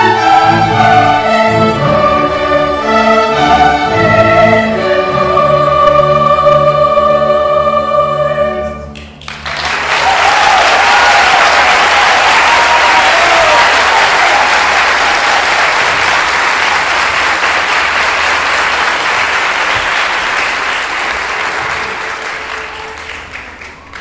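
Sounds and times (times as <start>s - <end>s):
audience applauding: 9.0s - 24.0s.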